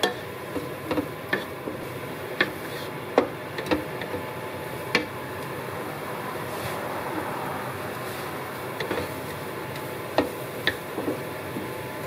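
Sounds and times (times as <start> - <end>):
spatula knocking frying pan: 0.0 - 4.2, 10.1 - 11.7
food sizzling: 0.0 - 12.0.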